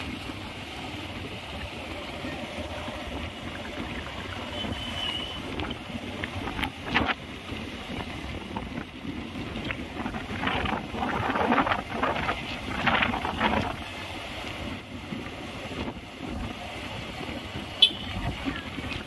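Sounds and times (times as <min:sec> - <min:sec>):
road traffic rumble: 0:00.0 - 0:19.0
wind buffeting microphone: 0:05.4 - 0:19.0.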